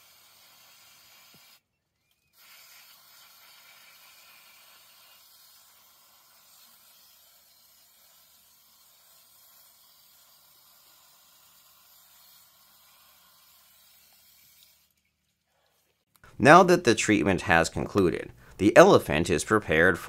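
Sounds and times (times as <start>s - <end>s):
aerosol spray hiss: 0.0s - 1.6s, 2.4s - 8.2s, 9.0s - 14.7s.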